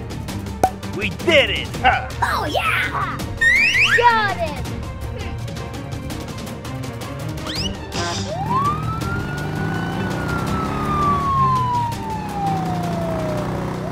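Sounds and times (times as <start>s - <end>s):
police siren wailing: 3.4s - 4.0s, 8.2s - 13.9s.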